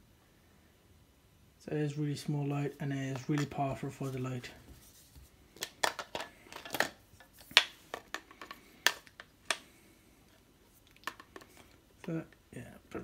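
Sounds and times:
handling clicks and taps: 0:03.1 - 0:03.6.

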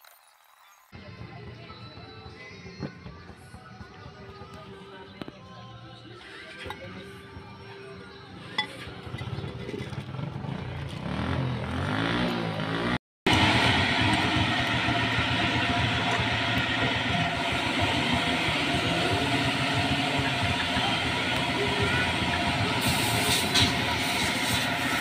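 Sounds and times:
motor vehicle engine: 0:06.7 - 0:25.0.

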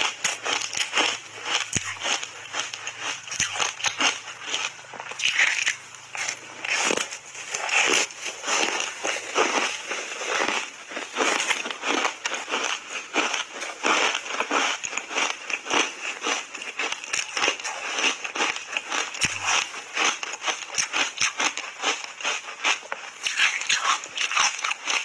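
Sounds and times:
crunchy ice being chewed: 0:00.0 - 0:25.0.

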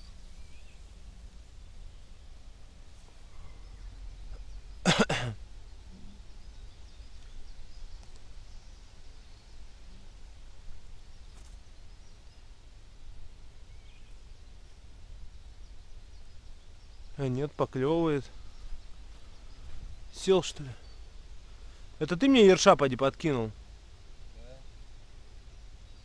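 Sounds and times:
person coughing: 0:04.9 - 0:05.4.

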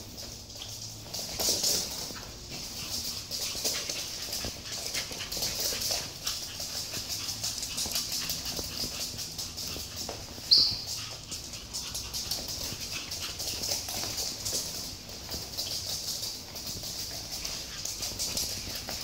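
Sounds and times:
dog claws clicking on wooden floor: 0:00.0 - 0:19.0
high squeak: 0:10.5 - 0:10.9.

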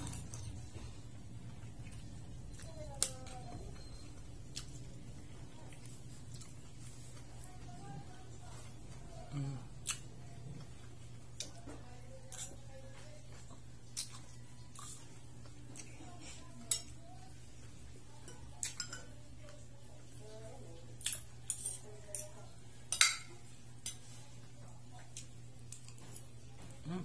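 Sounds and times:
cutlery clinking on a plate: 0:18.2 - 0:19.1, 0:22.9 - 0:24.0.

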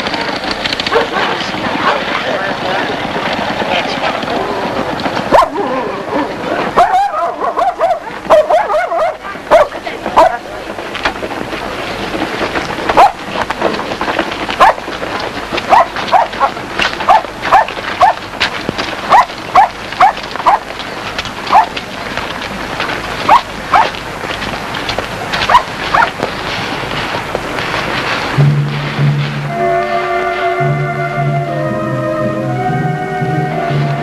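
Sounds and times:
noisy background: 0:00.0 - 0:34.0
dog barking: 0:00.9 - 0:02.0, 0:05.3 - 0:05.6, 0:06.8 - 0:10.4, 0:13.0 - 0:13.2, 0:14.6 - 0:14.8, 0:15.7 - 0:18.2, 0:19.1 - 0:20.6, 0:21.5 - 0:21.7, 0:23.3 - 0:23.9, 0:25.5 - 0:26.1.

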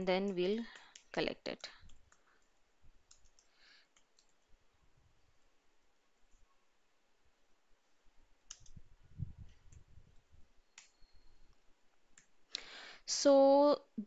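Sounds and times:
keyboard keystrokes: 0:08.5 - 0:08.8.

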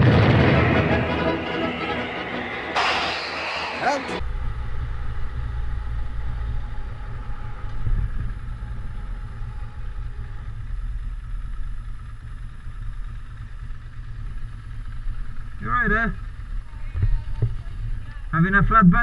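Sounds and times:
motorcycle engine rumble: 0:04.2 - 0:18.4.

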